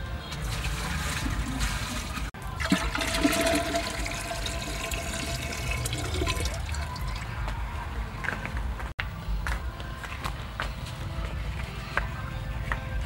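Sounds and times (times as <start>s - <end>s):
water pouring into a jar: 0.4s - 7.3s.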